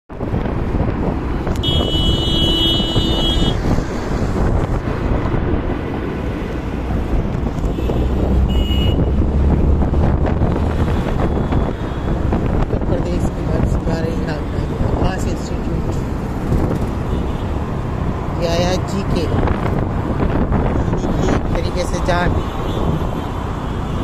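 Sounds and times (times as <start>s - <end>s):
traffic rumble: 0.1s - 24.0s
wind buffeting microphone: 0.1s - 24.0s
vehicle horn: 1.6s - 3.6s, 7.7s - 9.2s.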